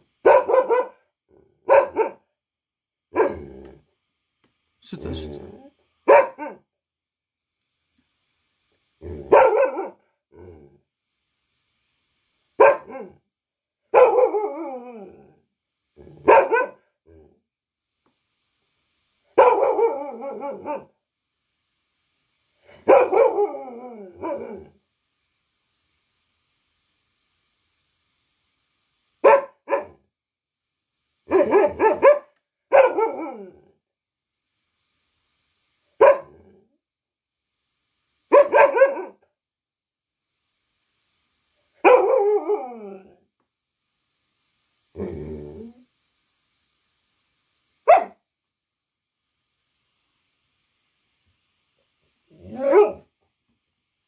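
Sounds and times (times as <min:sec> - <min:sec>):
dog barking: 0:00.2 - 0:01.0, 0:01.6 - 0:02.2, 0:03.1 - 0:03.5, 0:06.1 - 0:06.6, 0:09.3 - 0:10.0, 0:12.6 - 0:13.1, 0:13.9 - 0:14.6, 0:16.2 - 0:16.8, 0:19.4 - 0:20.9, 0:22.8 - 0:23.6, 0:24.2 - 0:24.6, 0:29.2 - 0:30.0, 0:31.3 - 0:33.5, 0:36.0 - 0:36.4, 0:38.3 - 0:39.2, 0:41.8 - 0:42.6, 0:47.9 - 0:48.2, 0:52.5 - 0:53.1.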